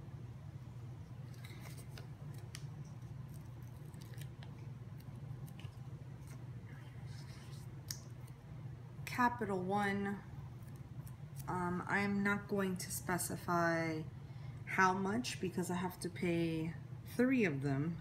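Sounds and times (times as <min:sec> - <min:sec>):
scratching on paper: 0:01.3 - 0:07.8.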